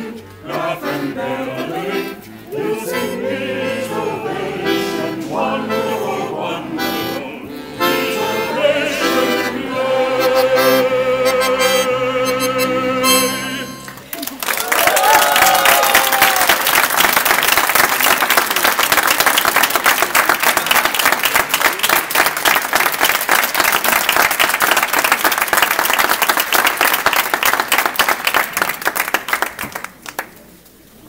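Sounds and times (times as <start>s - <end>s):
audience applauding: 13.9s - 30.5s.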